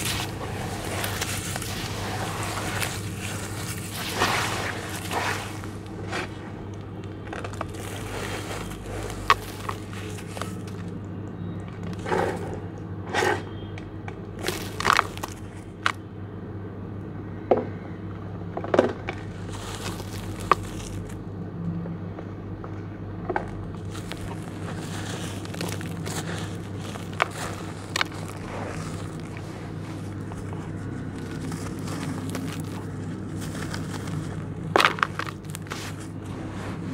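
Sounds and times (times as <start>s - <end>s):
hands crunching wet mud and sand: 0.0s - 11.1s, 14.4s - 16.0s, 19.2s - 21.2s, 23.5s - 36.9s
steady low hum: 0.0s - 36.9s.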